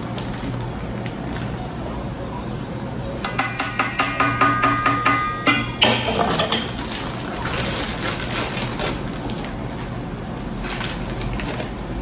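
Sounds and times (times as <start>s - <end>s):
utensil clinking against bowl: 3.2s - 6.9s.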